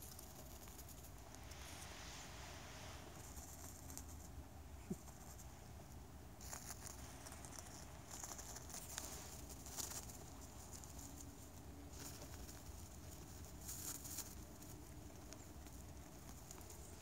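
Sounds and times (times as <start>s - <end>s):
rustling in dry leaves: 6.4s - 17.0s.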